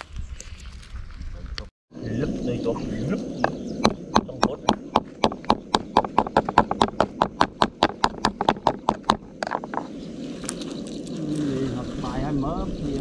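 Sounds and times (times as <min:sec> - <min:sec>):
knife chopping on wooden board: 0:03.8 - 0:09.8.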